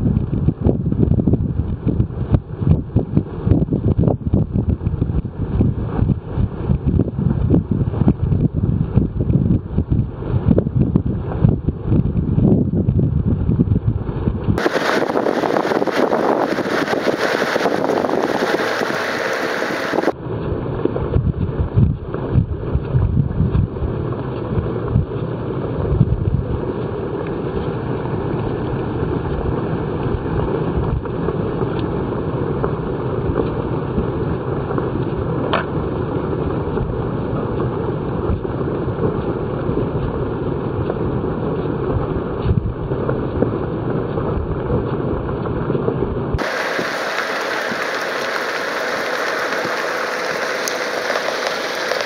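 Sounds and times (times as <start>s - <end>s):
wind rumble on microphone: 0.0s - 52.0s
high hiss: 14.6s - 20.2s, 46.4s - 52.0s.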